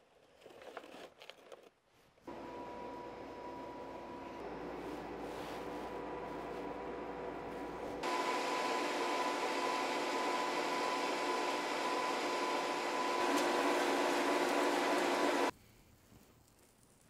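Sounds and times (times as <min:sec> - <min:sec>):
blower motor hum: 0:02.3 - 0:15.5.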